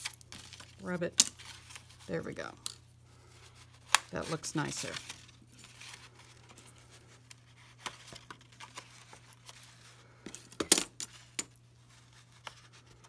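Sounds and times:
paper rustling: 0:03.2 - 0:10.0.

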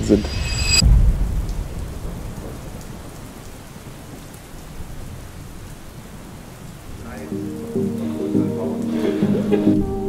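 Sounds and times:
low rumble of thunder: 0:00.0 - 0:07.0
steady rain falling: 0:00.8 - 0:10.0.

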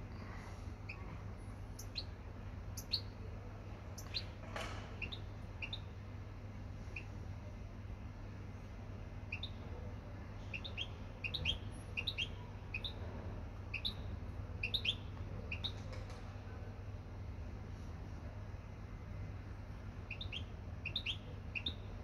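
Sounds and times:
bird chirping: 0:01.8 - 0:03.2, 0:04.0 - 0:04.4, 0:05.0 - 0:05.9, 0:09.3 - 0:09.7, 0:10.4 - 0:13.1, 0:13.7 - 0:15.9, 0:20.1 - 0:22.0.

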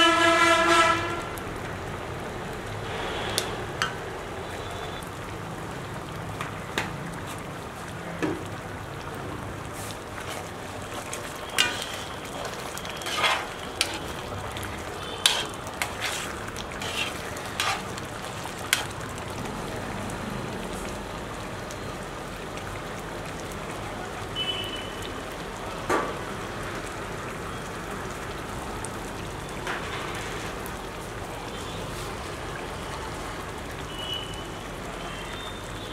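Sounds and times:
curry bubbling in a pan: 0:00.4 - 0:35.9
steel spoon scraping a pan: 0:11.5 - 0:14.2, 0:15.0 - 0:18.0, 0:18.7 - 0:19.0.

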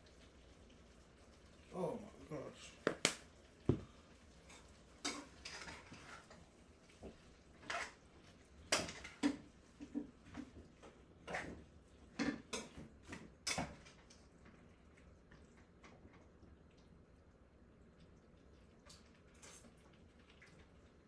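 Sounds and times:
pots and utensils clinking: 0:04.5 - 0:06.4, 0:08.6 - 0:10.5, 0:11.2 - 0:14.0.

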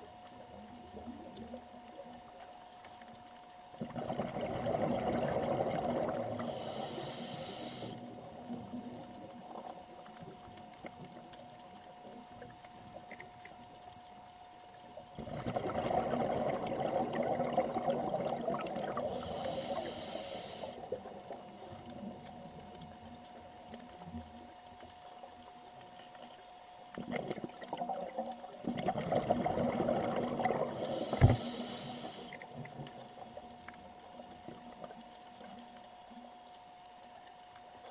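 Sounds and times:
faint steady hum: 0:00.0 - 0:37.9
diver breathing through regulator: 0:06.2 - 0:08.1, 0:19.0 - 0:20.8, 0:30.6 - 0:32.4.

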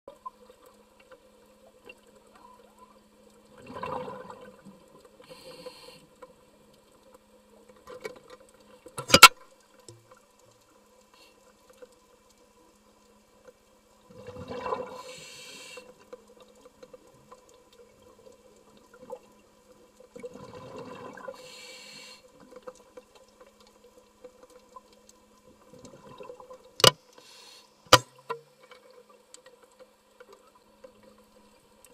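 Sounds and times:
exhaled bubbles underwater: 0:03.5 - 0:05.0, 0:14.1 - 0:15.1, 0:20.2 - 0:21.4, 0:25.7 - 0:26.6.

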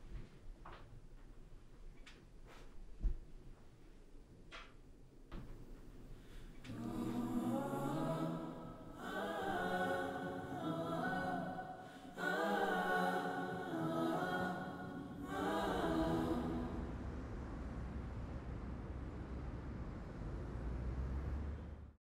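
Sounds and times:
choir singing long chords: 0:06.6 - 0:17.7.

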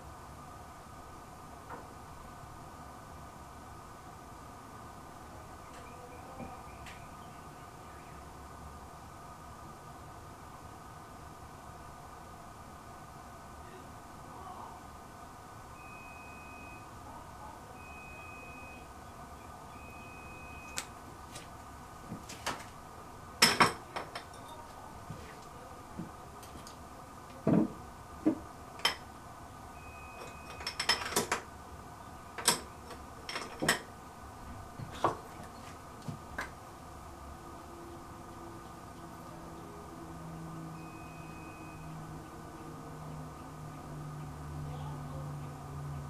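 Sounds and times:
faint high tone: 0:15.8 - 0:20.8, 0:40.7 - 0:42.1.

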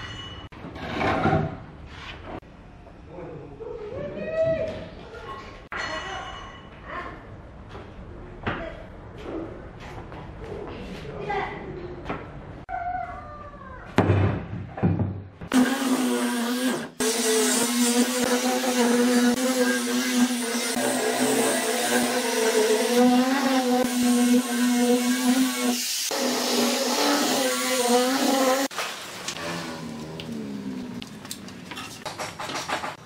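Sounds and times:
angle grinder sanding wood: 0:15.5 - 0:28.7.

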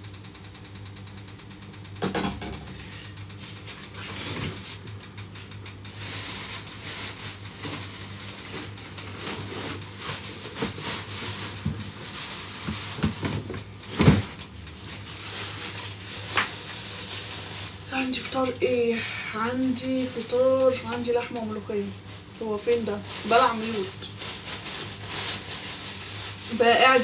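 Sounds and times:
pans and utensils knocking: 0:02.0 - 0:02.8
steady hiss: 0:14.8 - 0:27.0.

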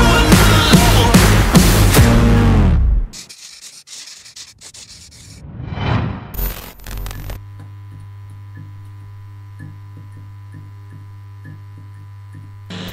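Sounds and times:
short glitchy noise: 0:05.3 - 0:07.4
whoosh: 0:05.4 - 0:06.8.

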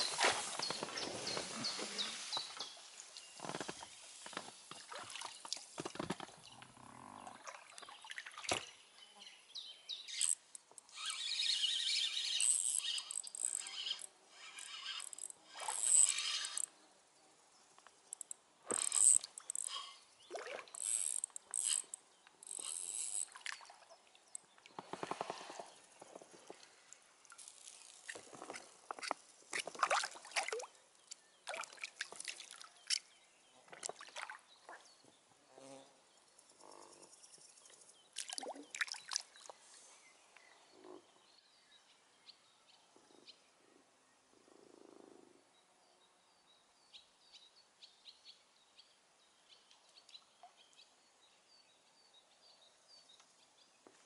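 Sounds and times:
water splashes: 0:04.0 - 0:06.2, 0:20.3 - 0:20.8, 0:29.5 - 0:30.7, 0:31.5 - 0:33.0, 0:38.2 - 0:39.6.

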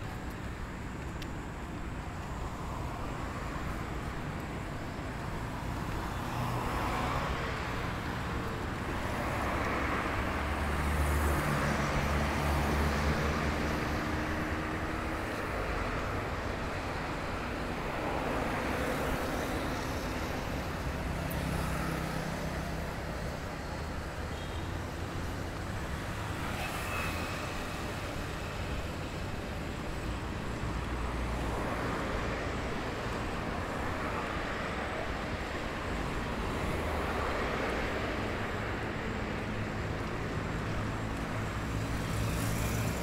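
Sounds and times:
cars passing: 0:00.0 - 0:43.0.

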